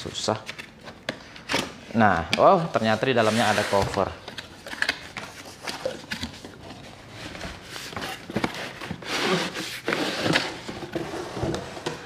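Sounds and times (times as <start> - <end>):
cardboard scraping on plastic case: 2.8 - 4.1, 5.3 - 12.0.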